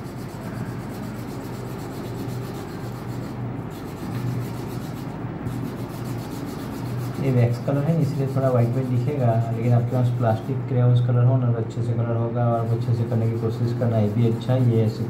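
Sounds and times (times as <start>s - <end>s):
crayon rubbing on paper: 0.0s - 10.6s, 12.4s - 15.0s.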